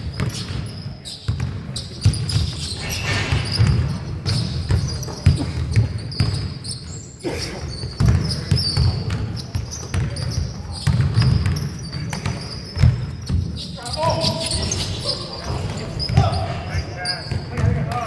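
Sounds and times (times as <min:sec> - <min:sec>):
sneakers squeaking: 0:00.0 - 0:18.0
basketball dribbling on hardwood: 0:08.0 - 0:13.5
players calling out: 0:10.1 - 0:18.0.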